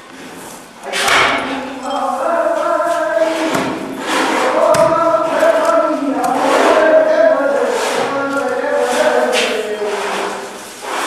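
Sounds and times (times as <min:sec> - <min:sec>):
voices singing long notes: 0:00.8 - 0:10.6.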